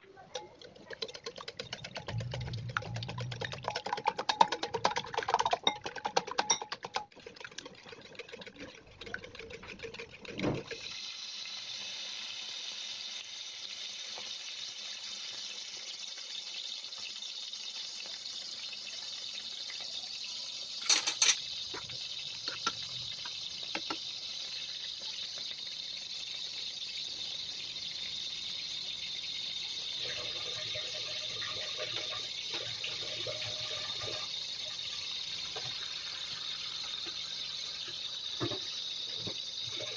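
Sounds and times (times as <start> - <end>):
whisk clicking against a bowl: 0.3 - 10.3
onions sizzling in hot oil: 10.8 - 39.9.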